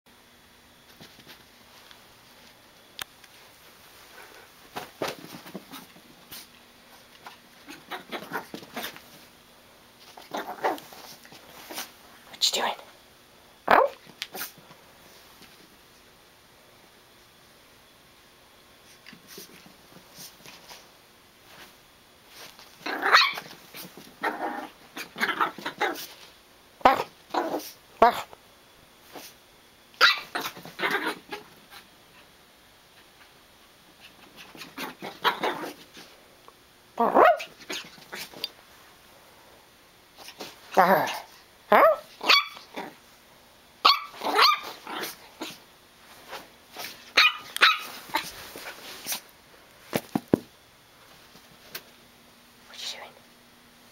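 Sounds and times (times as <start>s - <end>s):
puppy barking: 13.7s - 14.0s, 22.9s - 23.5s, 30.0s - 31.2s, 37.0s - 37.6s, 41.7s - 43.0s, 43.8s - 44.8s, 47.1s - 48.3s.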